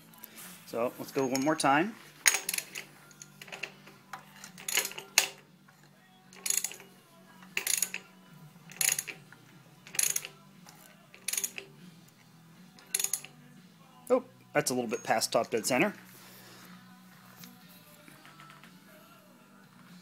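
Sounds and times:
ratchet wrench clicking: 2.3s - 8.0s, 8.7s - 11.7s, 12.8s - 13.3s.

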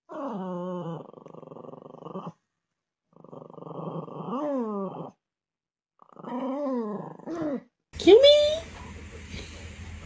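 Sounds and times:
small dog growling: 0.0s - 2.4s, 3.0s - 5.2s, 6.0s - 7.8s.

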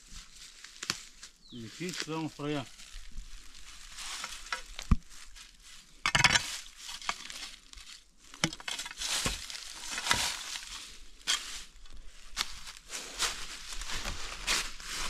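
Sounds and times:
footsteps crunching dry leaves: 0.0s - 15.0s
twigs snapping: 0.6s - 3.0s, 6.2s - 11.6s, 12.3s - 12.8s.

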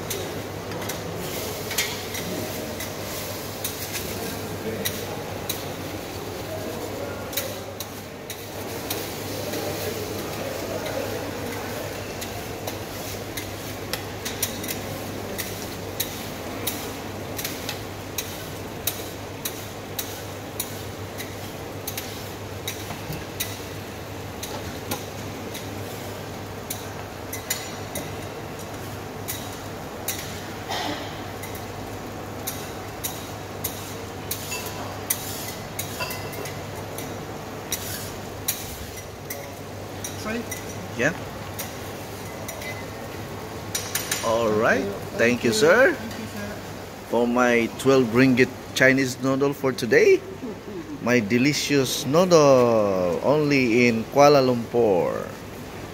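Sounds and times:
steady background hum: 0.0s - 55.9s
metal ladle clinking on pots: 32.4s - 40.8s.

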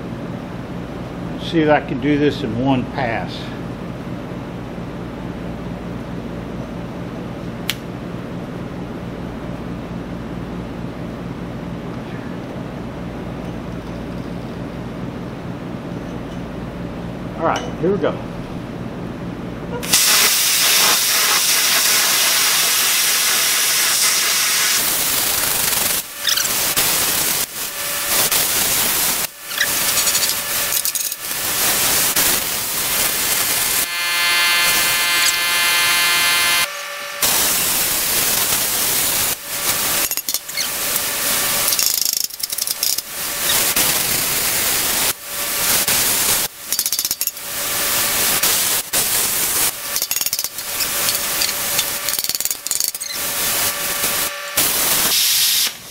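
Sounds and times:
welder arc hissing: 19.8s - 55.9s.

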